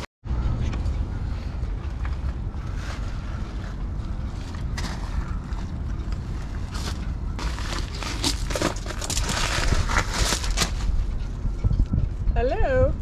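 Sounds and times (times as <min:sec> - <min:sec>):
wind rumbling on microphone: 0:00.3 - 0:13.0
scuffing handling noises: 0:06.4 - 0:11.0.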